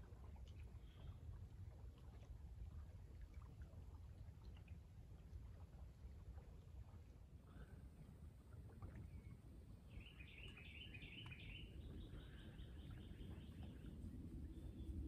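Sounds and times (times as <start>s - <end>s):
low steady rumble: 0.0s - 15.0s
songbird trilling: 9.9s - 13.8s.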